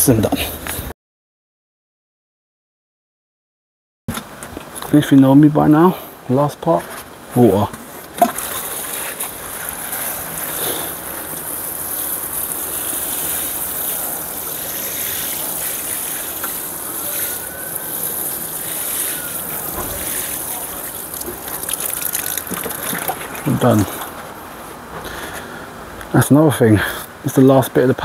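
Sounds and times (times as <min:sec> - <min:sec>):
water pouring onto soil: 0:08.2 - 0:24.2.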